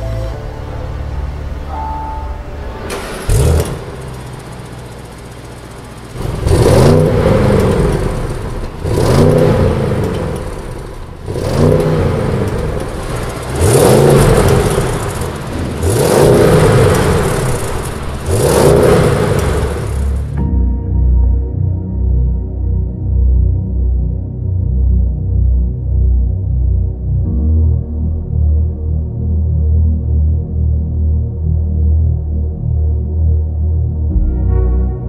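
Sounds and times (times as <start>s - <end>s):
car engine revving: 0.0s - 20.5s.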